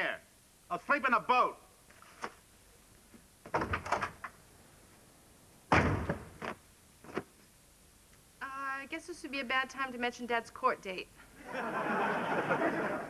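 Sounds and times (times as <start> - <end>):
door slamming shut: 3.5 - 4.3, 5.7 - 6.6.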